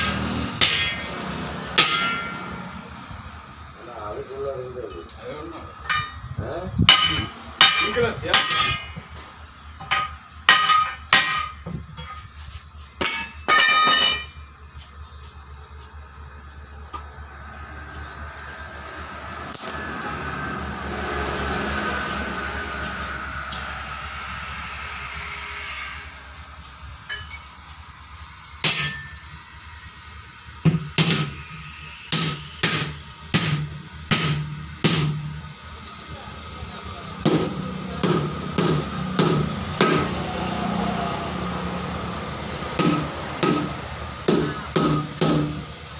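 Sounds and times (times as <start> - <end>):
hammer clanging on steel bar: 1.8 - 2.5, 6.9 - 9.0, 9.8 - 11.7
hammer blows on tyre rim: 6.8 - 9.0, 37.2 - 41.0, 42.7 - 45.8.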